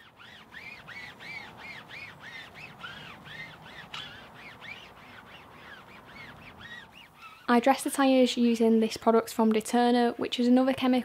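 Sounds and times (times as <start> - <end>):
foam pad squeaking on rubber tyre: 0.0 - 7.5.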